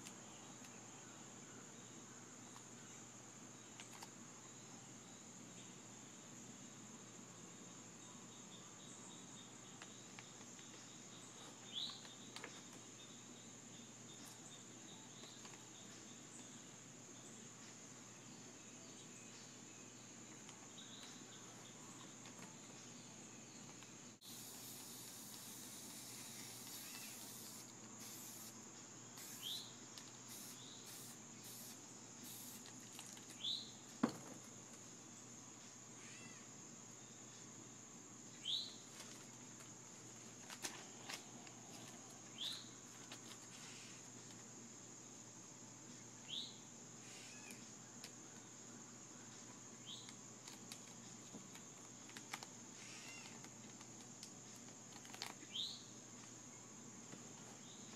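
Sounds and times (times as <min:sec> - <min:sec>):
high-pitched insect drone: 0:23.2 - 0:32.8, 0:52.7 - 0:53.5
hissing bursts: 0:24.2 - 0:32.8
short rising chirps: 0:29.2 - 0:29.7.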